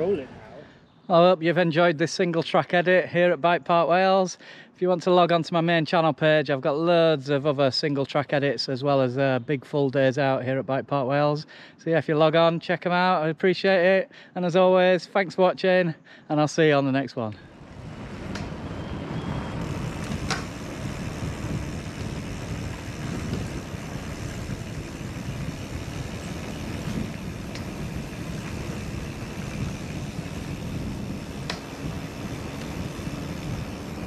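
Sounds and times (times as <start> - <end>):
wind rushing on microphone: 17.5 - 34.0
sharp clicks: 18.3 - 18.6, 26.9 - 27.7, 31.4 - 31.7.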